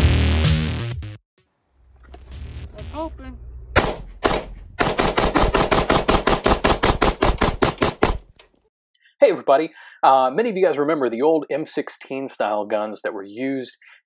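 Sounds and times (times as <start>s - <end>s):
rifle gunshots: 3.8s - 8.3s.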